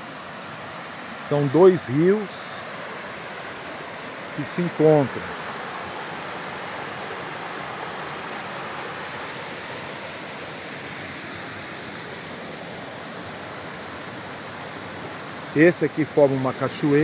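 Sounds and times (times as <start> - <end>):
river water rushing over rocks: 0.0 - 17.0.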